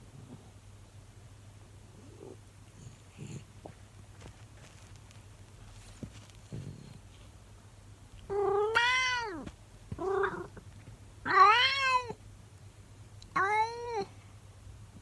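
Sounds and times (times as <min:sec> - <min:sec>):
cat meowing: 0:08.3 - 0:09.4, 0:11.2 - 0:12.2, 0:13.3 - 0:14.1.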